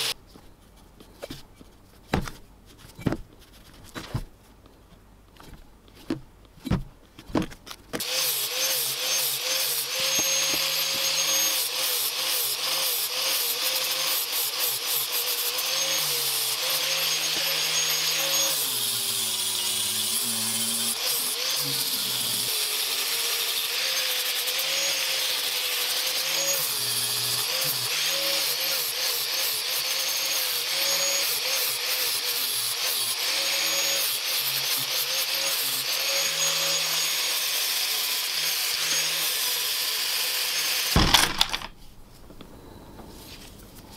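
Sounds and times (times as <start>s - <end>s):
angle grinder grinding steel: 8.0s - 41.7s.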